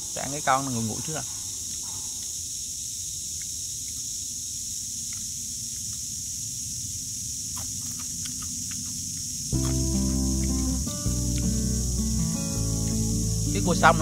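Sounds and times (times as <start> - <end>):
high-pitched insect drone: 0.0 - 14.0
crab shell cracking: 7.6 - 11.5.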